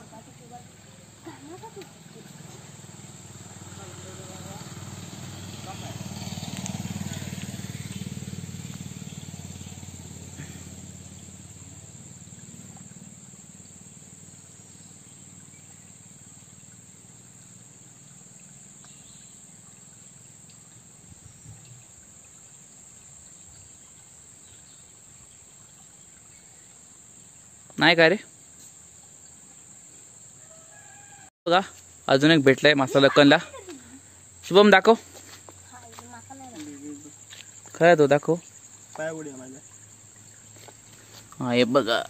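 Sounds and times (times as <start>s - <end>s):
crickets droning: 0.0s - 42.0s
faint ticks: 18.2s - 19.3s, 20.0s - 20.8s.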